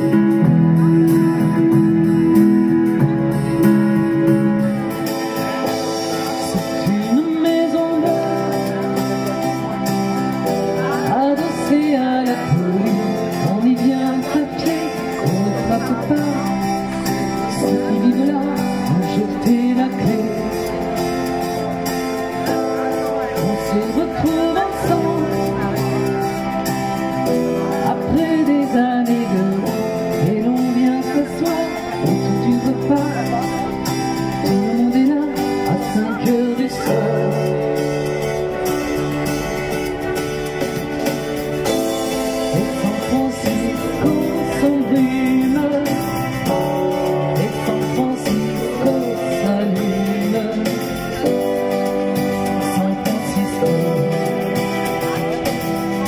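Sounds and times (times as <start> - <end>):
electric keyboard chords: 0.0 - 56.0
woman singing: 10.8 - 16.5, 17.6 - 20.5, 23.4 - 25.8, 34.5 - 37.3.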